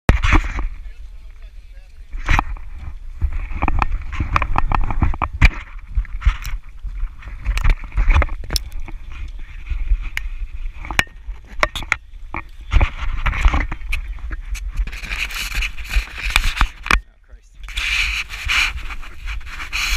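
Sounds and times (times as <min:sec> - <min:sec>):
wind rumbling on microphone: 0:00.1 - 0:19.9
snowboard scraping over snow: 0:17.7 - 0:19.9.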